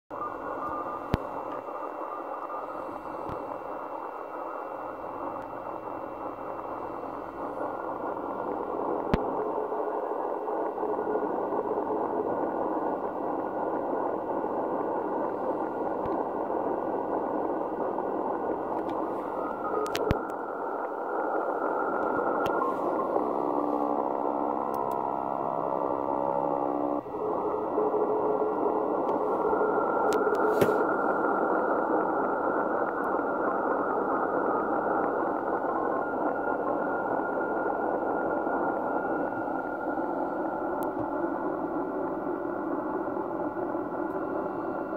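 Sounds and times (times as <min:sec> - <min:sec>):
shortwave radio static: 0:00.1 - 0:44.9
steady radio tones: 0:00.1 - 0:44.9.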